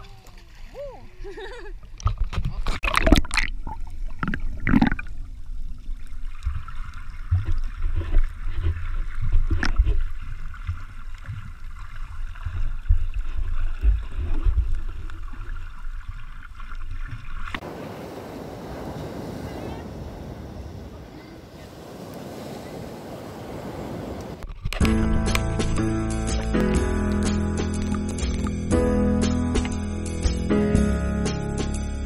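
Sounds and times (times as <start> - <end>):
water splashing: 0.0 - 28.8
underwater rumble and gurgling: 1.8 - 17.6.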